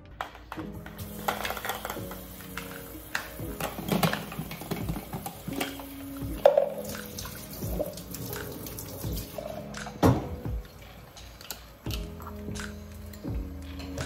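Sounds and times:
background music with held notes: 0.0 - 14.0
faucet running into steel sink: 1.0 - 9.6
plastic cup knocking and clattering: 3.5 - 5.8.

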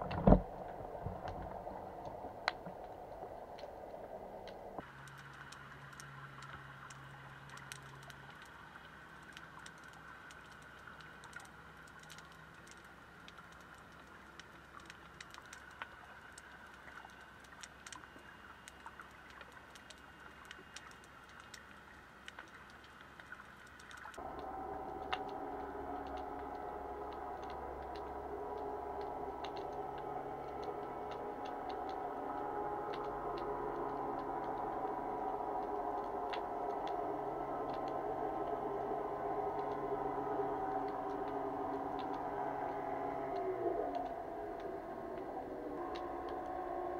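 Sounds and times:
underwater clicking and crackling: 0.0 - 46.9
steady multi-tone drone: 24.2 - 46.9.

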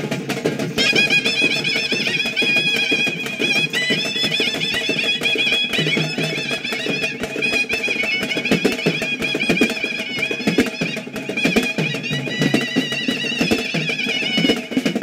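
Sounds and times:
large drums beaten with sticks: 0.0 - 15.0
ornamented wind instrument melody: 0.7 - 15.0.

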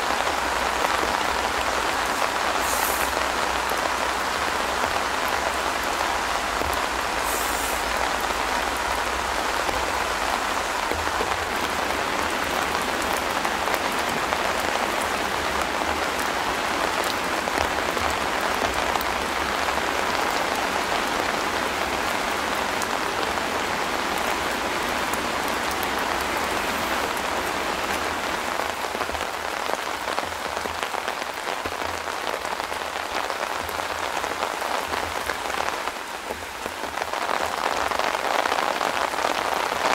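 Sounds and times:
rain pattering on tent fabric: 0.0 - 39.9.

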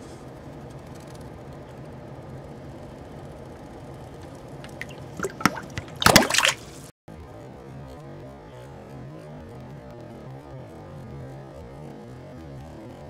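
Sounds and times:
faint steady hum: 0.0 - 6.9
water splashing: 4.6 - 6.9.

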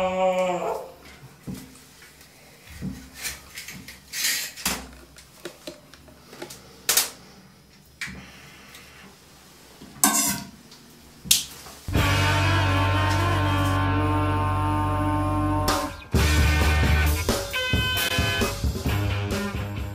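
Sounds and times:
clicks knocks and rustles of handling: 2.8 - 7.2.

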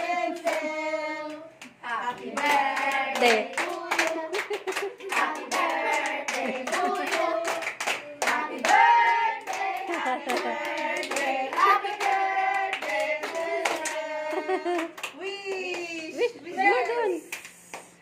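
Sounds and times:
group of people singing: 0.0 - 15.0
people clapping in time: 1.6 - 15.9.

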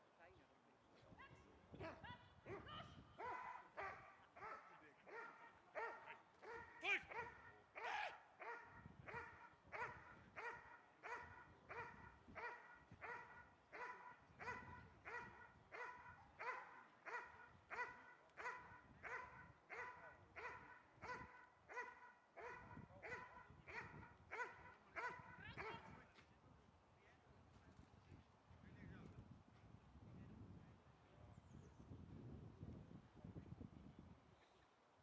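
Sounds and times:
dog barking: 1.8 - 25.9.

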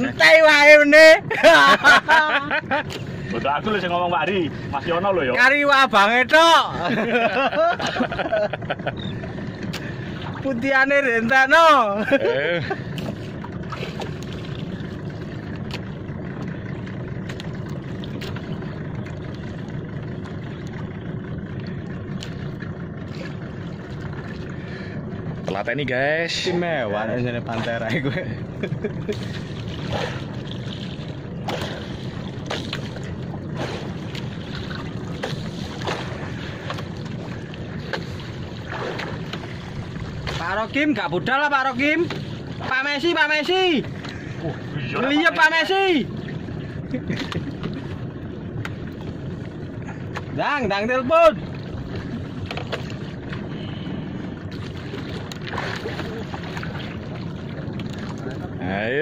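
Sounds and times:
water washing against boat: 0.0 - 59.0
sharp clicks or splashes: 9.6 - 10.4, 17.2 - 18.5, 29.1 - 37.1, 54.5 - 56.9
wind on microphone: 29.1 - 41.1, 46.0 - 59.0.

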